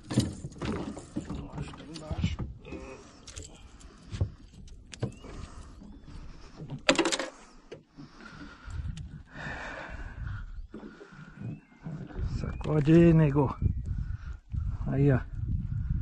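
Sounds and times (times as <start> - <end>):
handling clicks and knocks: 6.8 - 7.4.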